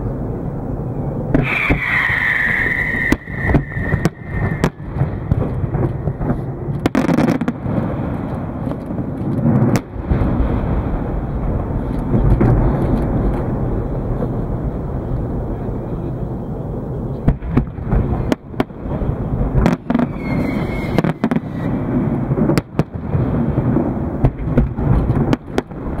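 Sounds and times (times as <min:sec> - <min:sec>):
low rumble: 0:00.0 - 0:26.0
firework shells bursting: 0:01.3 - 0:10.0, 0:19.6 - 0:23.0
high falling whistle: 0:01.4 - 0:05.5, 0:19.9 - 0:21.8.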